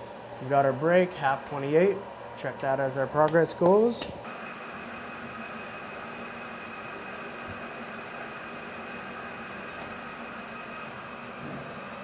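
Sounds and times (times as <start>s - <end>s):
metal lathe humming and whining: 4.3s - 12.0s.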